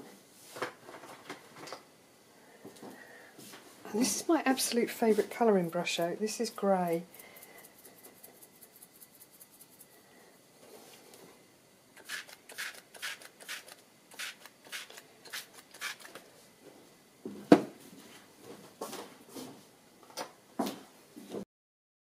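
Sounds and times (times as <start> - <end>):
spray bottle spritzing: 12.0 - 16.2.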